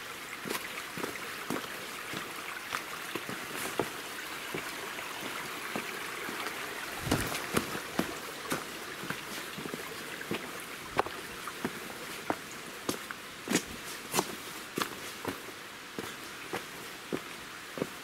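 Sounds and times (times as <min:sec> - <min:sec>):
stream water trickling: 0:00.0 - 0:18.0
footsteps on loose stones: 0:07.0 - 0:09.4.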